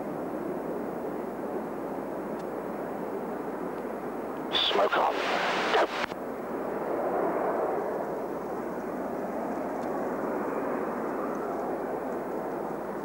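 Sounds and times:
jet engines rushing: 4.3 - 8.6.

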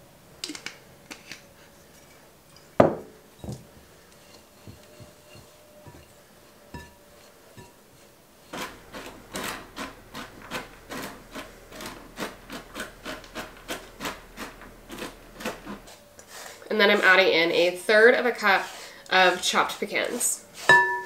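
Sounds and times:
wooden spoon scraping dough in bowl: 3.8 - 20.9.

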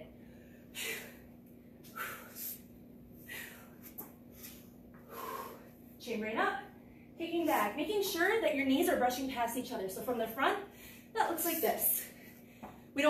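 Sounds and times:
woman breathing hard: 0.1 - 5.8.

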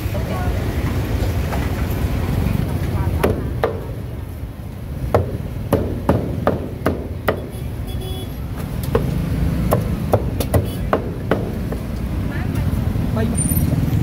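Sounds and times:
cleaver chopping on a block: 5.1 - 7.5, 8.9 - 11.8.

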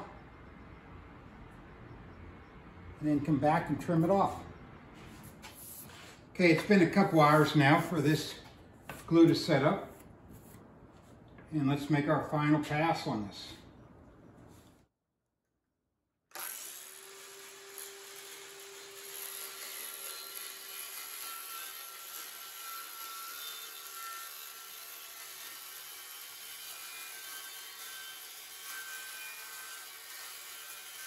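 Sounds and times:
circular saw cutting hardboard: 16.3 - 31.0.

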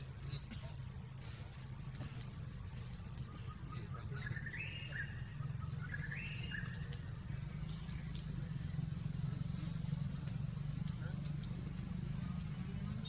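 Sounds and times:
steady low hum: 0.0 - 13.0
bird calling: 2.0 - 8.9.

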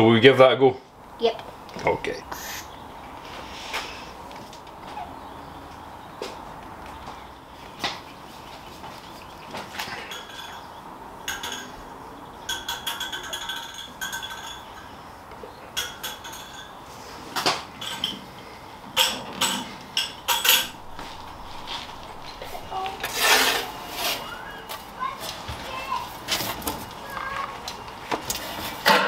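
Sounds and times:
scrape: 21.5 - 24.4.

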